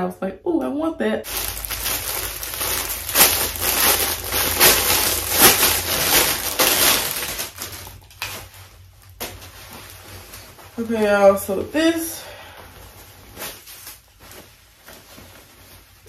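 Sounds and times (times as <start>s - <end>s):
plastic packaging crinkling: 1.2s - 11.8s.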